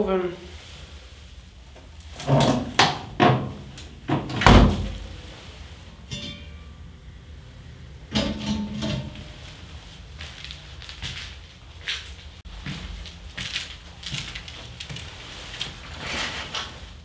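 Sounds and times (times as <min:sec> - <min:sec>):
metal stove doors clanking: 0:06.1 - 0:06.6, 0:08.1 - 0:09.5.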